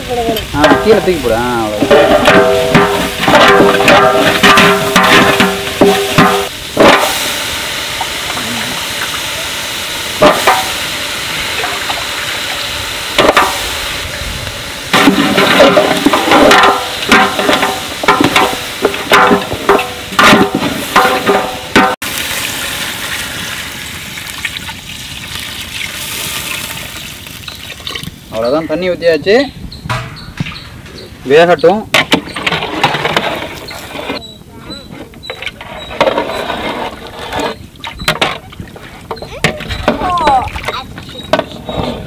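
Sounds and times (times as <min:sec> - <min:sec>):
frying sizzle: 0:00.0 - 0:29.3
metal ladle scraping pot: 0:01.7 - 0:07.2, 0:14.9 - 0:22.0, 0:32.0 - 0:34.2, 0:35.2 - 0:40.0.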